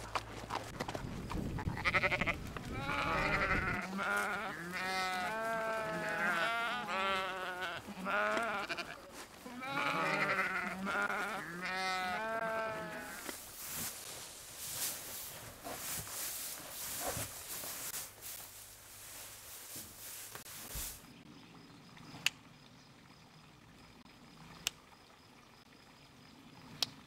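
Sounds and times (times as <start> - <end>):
livestock bleating: 1.7 - 13.3.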